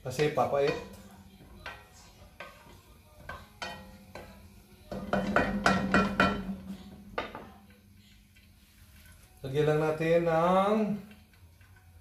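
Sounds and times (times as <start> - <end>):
wooden spoon knocking on pan: 0.1 - 7.8.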